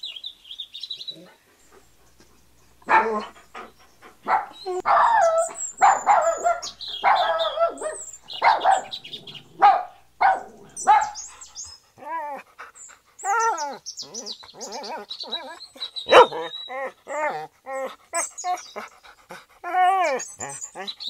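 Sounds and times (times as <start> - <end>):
puppy barking and yipping: 2.8 - 3.3, 4.2 - 9.0, 9.6 - 11.3, 16.1 - 16.5.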